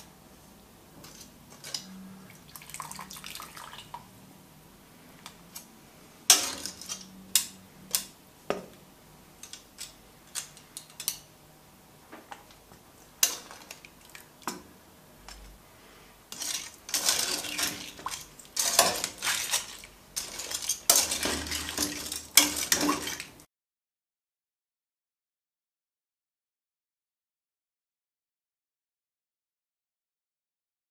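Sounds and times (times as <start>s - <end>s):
metal tongs clinking on pot: 1.0s - 2.0s, 6.3s - 8.2s, 9.4s - 11.3s, 13.2s - 13.8s, 16.3s - 23.3s.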